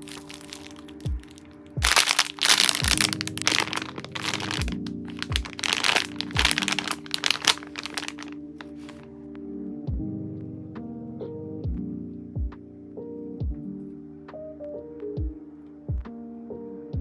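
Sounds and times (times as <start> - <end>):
plastic packaging crinkling: 0.0 - 9.0
background music with steady beat: 0.0 - 17.0.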